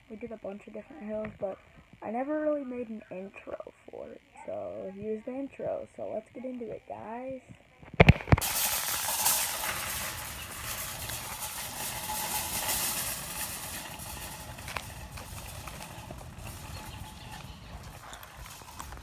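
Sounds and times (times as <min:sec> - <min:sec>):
shopping cart rattling on asphalt: 0:08.3 - 0:19.0.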